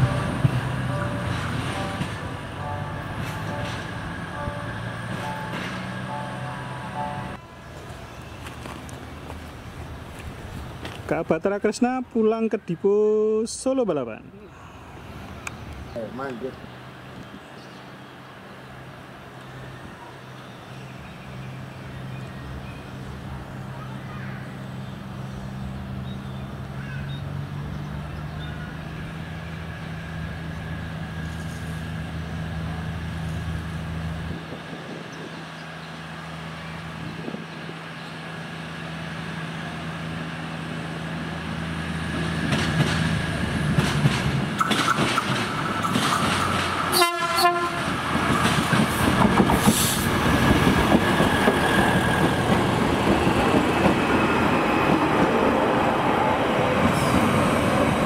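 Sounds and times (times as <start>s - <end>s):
train horn blast: 0.0s - 7.6s, 46.9s - 48.0s
diesel train engine hum: 0.0s - 58.0s
train wheel clatter: 42.1s - 55.4s.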